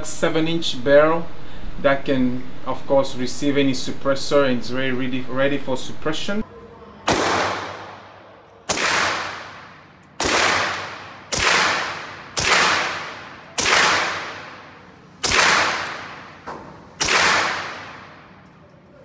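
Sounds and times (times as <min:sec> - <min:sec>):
faint gunshot crack: 0:07.1 - 0:08.0
pistol shots echoing: 0:07.1 - 0:16.4, 0:17.0 - 0:18.4.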